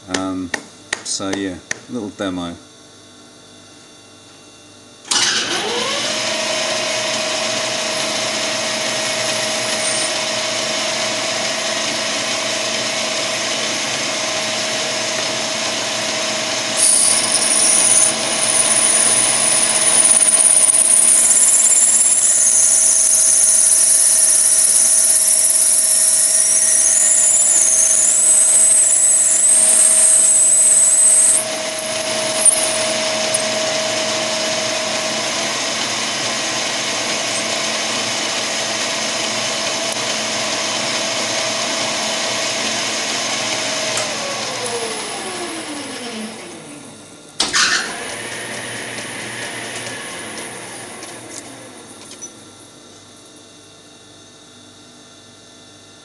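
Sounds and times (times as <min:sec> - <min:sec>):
drill whining cutting brass: 0:05.1 - 0:40.0, 0:47.4 - 0:52.4
lathe motor humming: 0:05.5 - 0:52.5.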